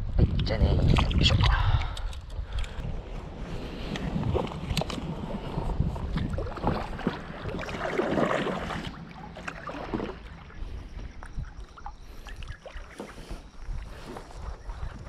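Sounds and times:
paddle stroking through water: 2.9s - 15.0s
water splashing and dripping: 6.1s - 14.0s.

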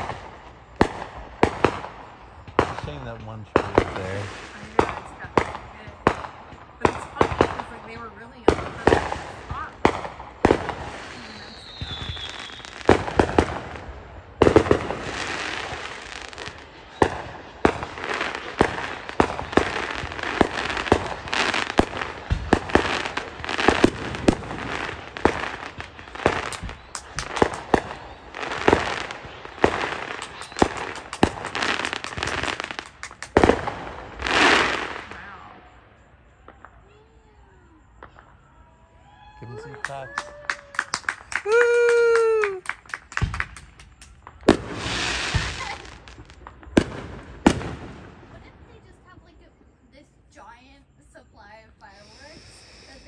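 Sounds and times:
firework bangs: 0.0s - 53.0s
firework crackling: 0.0s - 53.0s
falling whistle: 11.2s - 12.9s, 30.2s - 31.2s, 38.1s - 42.8s.

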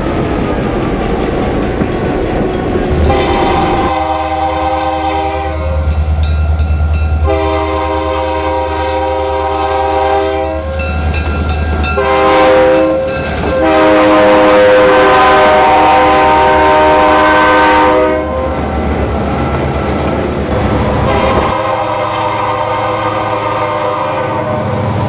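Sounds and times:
wheels clattering on rails: 0.1s - 3.3s, 12.7s - 13.6s
diesel engines rumbling: 2.2s - 4.0s
locomotive air horn: 2.9s - 5.8s, 7.2s - 10.7s, 12.0s - 18.5s, 21.0s - 25.0s.

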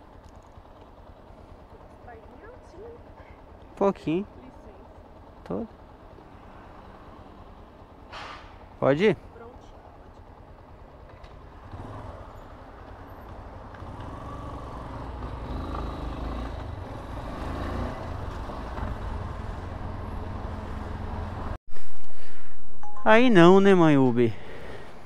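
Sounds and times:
motorcycle engine pulling away: 10.1s - 21.6s.

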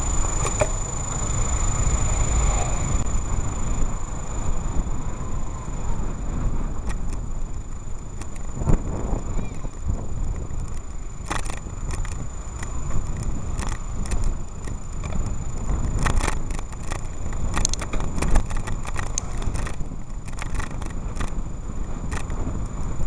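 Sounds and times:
bicycle rattling and clicking: 0.0s - 23.0s
car traffic: 0.0s - 23.0s
thin steady high whine: 0.0s - 23.0s
wind rumbling on microphone: 0.0s - 23.0s.

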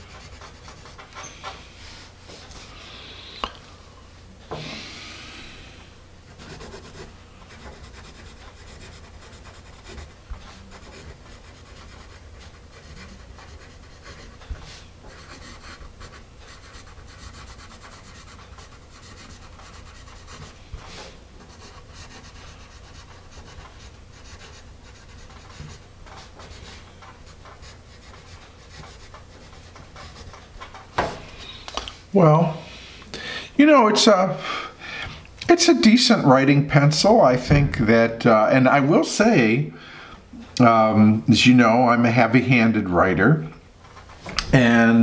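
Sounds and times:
pencil scratching on paper: 0.0s - 1.5s, 6.3s - 30.5s.

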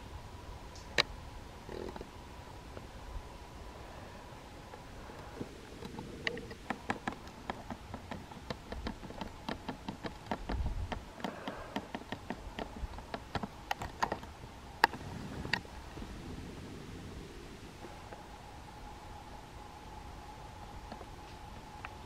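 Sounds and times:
sharp clicks and taps: 5.8s - 15.6s
low rumble: 14.4s - 22.0s.

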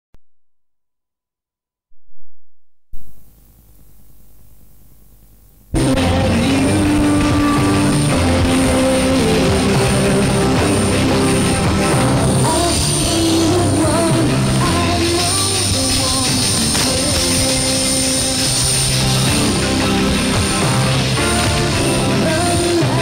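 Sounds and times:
cassette tape hiss: 3.0s - 23.0s
thin high whine: 3.0s - 23.0s
steady rushing noise: 5.8s - 23.0s
sustained music-like tones: 5.8s - 23.0s.

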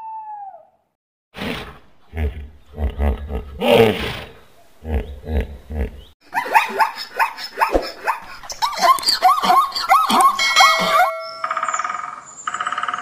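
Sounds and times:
hippopotamus grunting: 1.4s - 6.2s.

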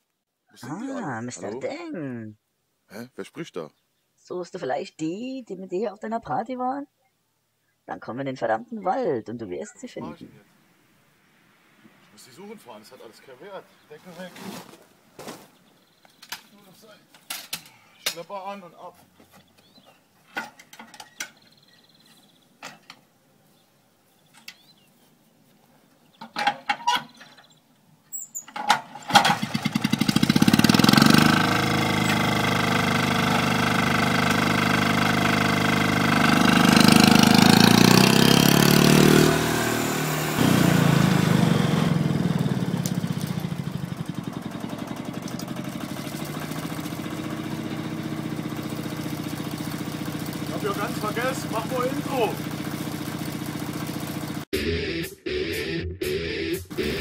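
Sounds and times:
tractor engine running and revving: 29.1s - 54.5s.

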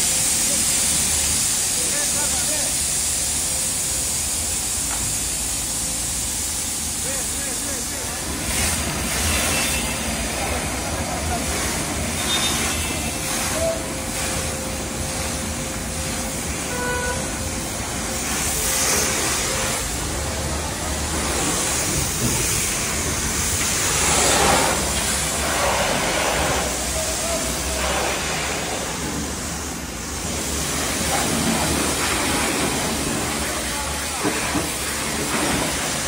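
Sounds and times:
pressure washer jet hissing: 0.0s - 36.0s.

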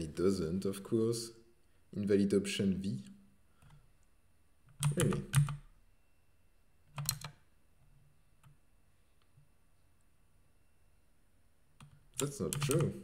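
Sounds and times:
typing on keyboard: 4.7s - 5.7s, 6.9s - 7.4s, 11.8s - 13.0s.

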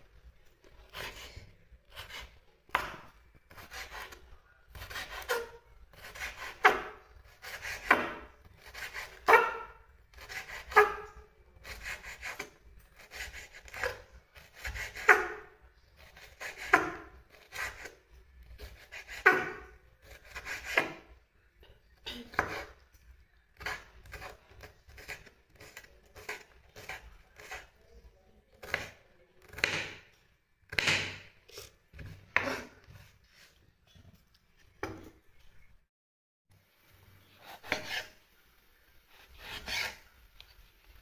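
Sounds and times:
knife slicing pepper on board: 4.8s - 15.4s, 16.0s - 18.0s, 18.6s - 21.1s, 22.2s - 22.8s, 23.6s - 27.7s, 28.6s - 30.1s, 30.7s - 33.1s, 37.4s - 38.2s, 39.1s - 40.0s.

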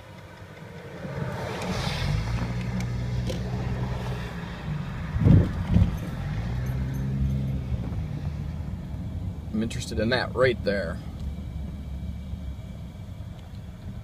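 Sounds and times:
car engine humming: 0.0s - 14.0s
wind noise on microphone: 4.9s - 8.5s.

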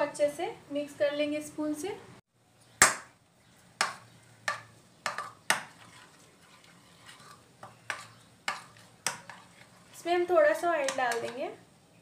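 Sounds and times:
spoon clinking and scraping bowl: 3.8s - 11.4s.

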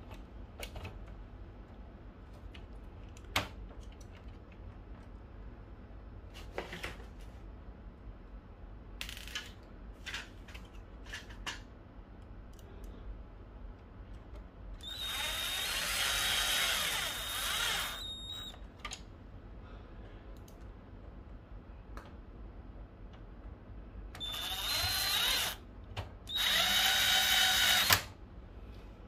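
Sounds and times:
electric screwdriver whine: 14.8s - 18.6s, 24.2s - 25.6s, 26.3s - 28.1s.

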